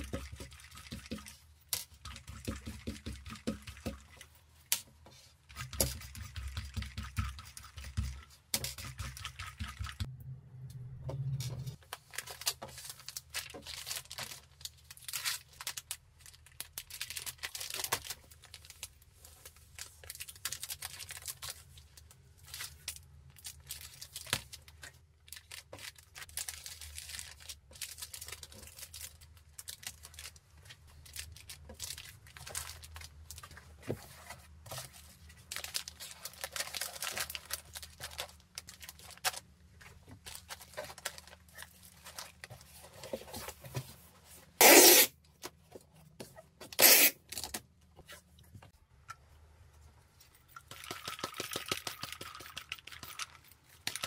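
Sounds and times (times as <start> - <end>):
plastic bag crinkling: 11.7 - 33.7, 34.9 - 42.5.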